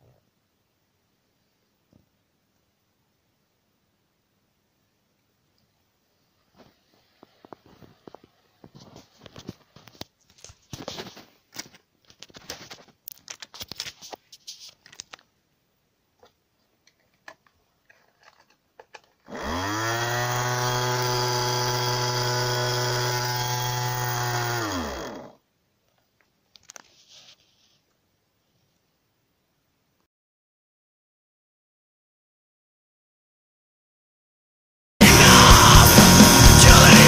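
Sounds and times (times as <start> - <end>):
small electric motor whining: 19.3 - 25.4.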